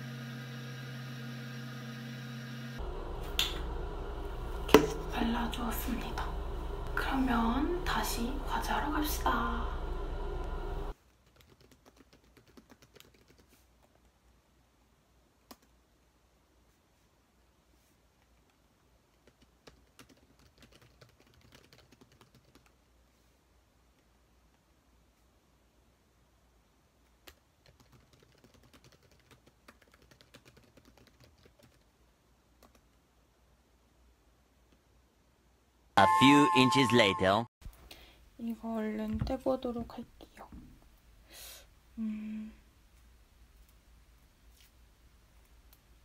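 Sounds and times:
typing on laptop keyboard: 11.0s - 14.1s, 15.4s - 15.8s, 19.1s - 22.8s, 27.2s - 32.0s, 32.6s - 33.0s.

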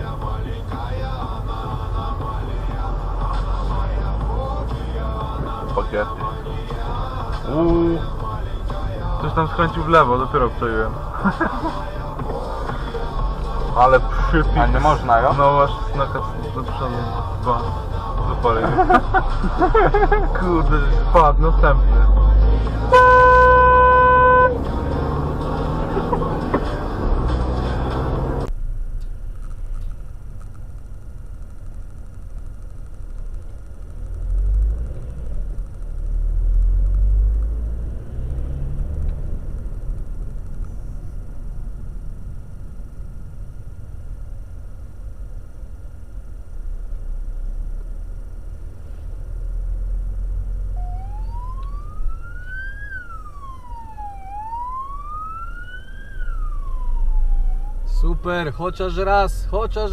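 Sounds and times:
car cabin rumble: 0.0s - 59.9s
police siren wailing: 50.7s - 59.5s.

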